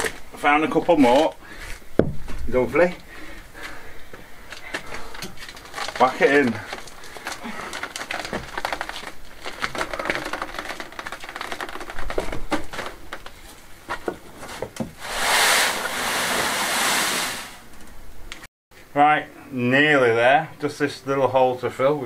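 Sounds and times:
wheelbarrow rattling over stone: 5.4s - 14.9s
steady rushing noise: 15.0s - 17.7s.

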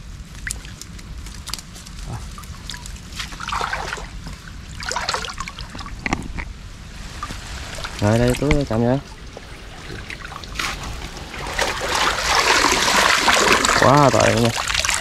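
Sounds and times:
water splashing and dribbling: 0.2s - 15.0s
large splashes: 2.7s - 4.2s, 7.1s - 15.0s.

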